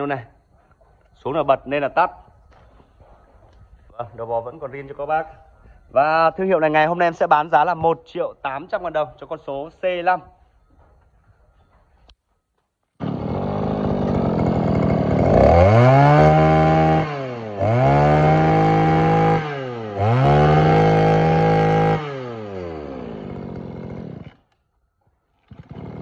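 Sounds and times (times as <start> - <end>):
brush cutter engine revving: 13.0 - 24.6, 25.4 - 26.0.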